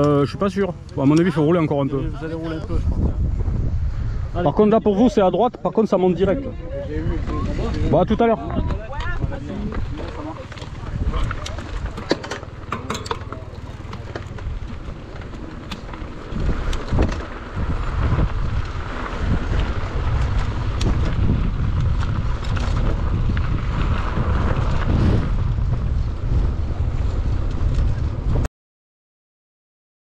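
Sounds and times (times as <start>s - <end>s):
bike clicks and rattles: 0.0s - 1.6s, 7.0s - 28.5s
wind buffeting microphone: 0.0s - 28.5s.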